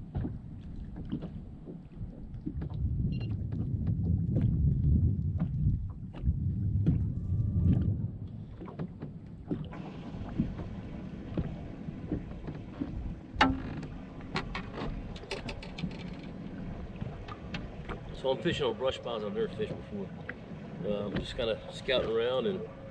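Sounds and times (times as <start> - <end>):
water lapping against boat hull: 0.0 - 22.9
wind rumble on microphone: 0.0 - 22.9
fish knocking on boat deck: 12.1 - 15.9.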